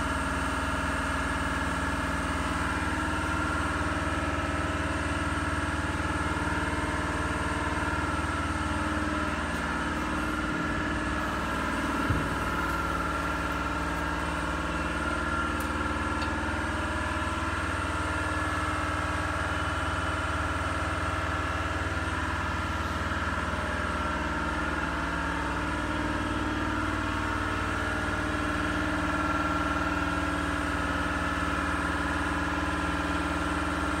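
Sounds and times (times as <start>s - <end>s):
machine motors humming: 1.1s - 25.9s.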